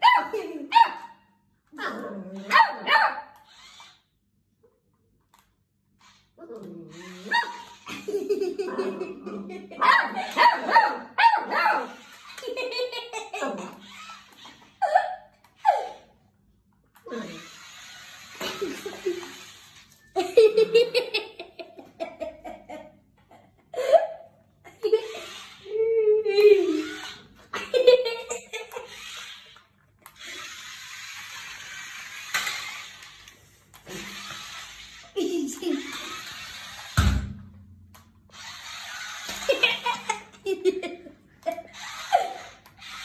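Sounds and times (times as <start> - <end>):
puppy barking: 0.0 - 1.2, 1.8 - 3.4, 9.8 - 12.0
toy car motor whirring: 3.2 - 4.2, 5.3 - 8.7, 10.1 - 10.6, 11.4 - 16.2, 16.9 - 22.4, 24.8 - 37.2, 37.9 - 43.0
pulsed laughter-like sounds: 6.9 - 10.6, 11.9 - 16.1, 18.2 - 29.6, 39.1 - 42.7.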